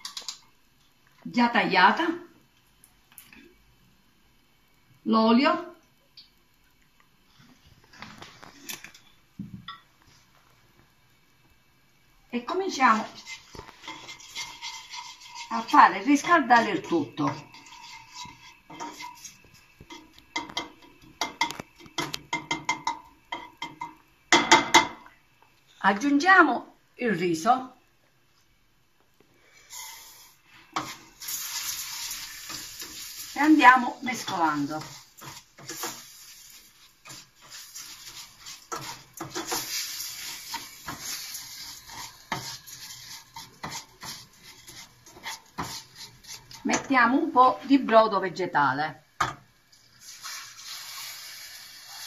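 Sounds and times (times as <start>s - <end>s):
spoon scraping a pan: 12.8s - 25.0s, 29.6s - 47.8s.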